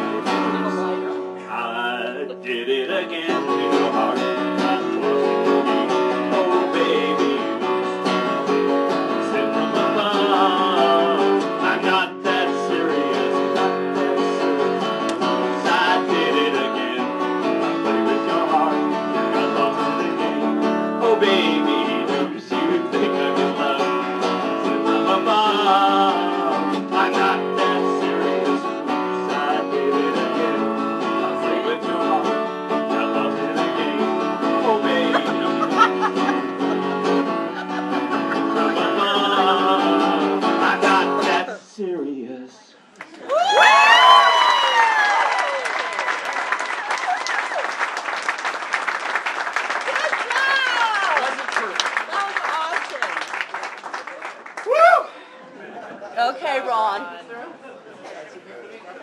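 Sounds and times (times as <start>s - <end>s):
person singing: 0.0s - 8.4s, 9.0s - 41.7s
acoustic guitar strumming: 0.0s - 41.5s.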